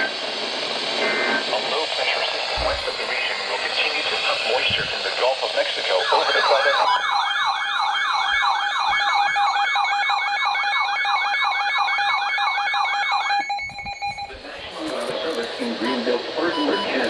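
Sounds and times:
steady alarm tone: 5.8 - 17.0
falling siren sweeps: 6.0 - 14.6.

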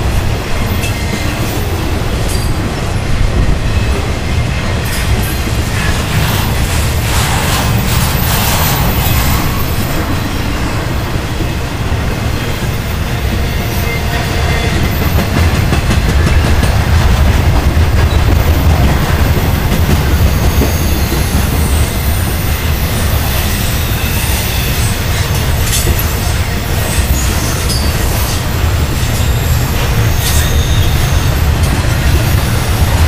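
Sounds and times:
train wheels rumbling on rail: 0.0 - 33.0
high wheel squeals: 5.1 - 11.3, 19.2 - 33.0.

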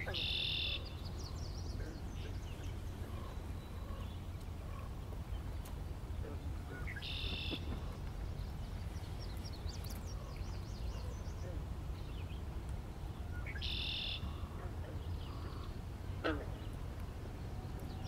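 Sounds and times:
small birds chirping: 0.0 - 18.0
steady low rumble: 0.8 - 13.6.

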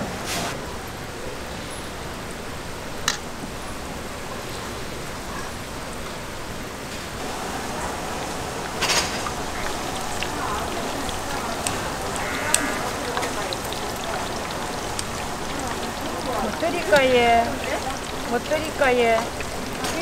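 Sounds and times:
hot oil sizzling: 0.6 - 20.0.

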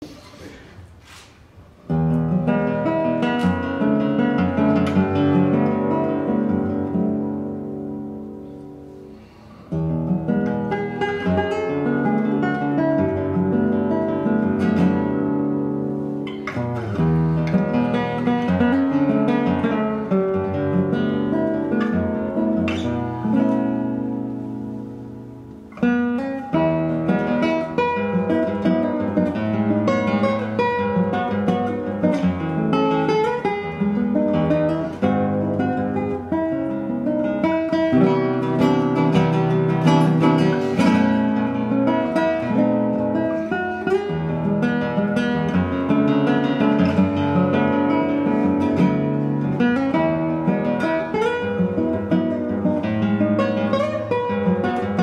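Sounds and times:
classical guitar fingerstyle: 0.0 - 55.0.

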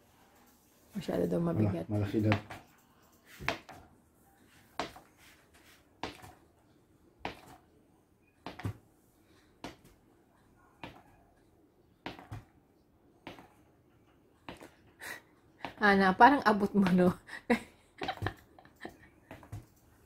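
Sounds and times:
ball tapping on tile floor: 8.4 - 8.8.

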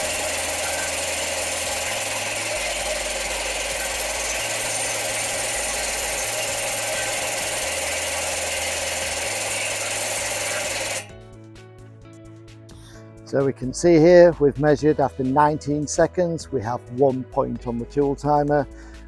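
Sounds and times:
impact wrench rattling: 0.0 - 11.1.

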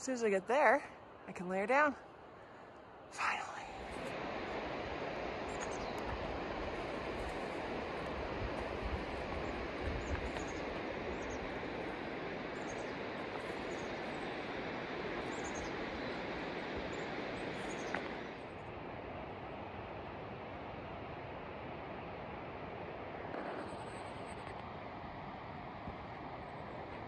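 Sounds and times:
steady rushing hiss: 0.0 - 27.0
small bird chirping: 9.3 - 11.6, 12.5 - 14.5, 15.2 - 16.2.

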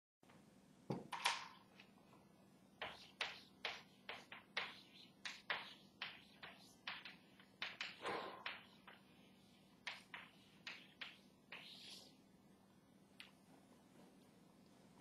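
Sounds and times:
chalk tapping and scraping: 2.8 - 12.2.

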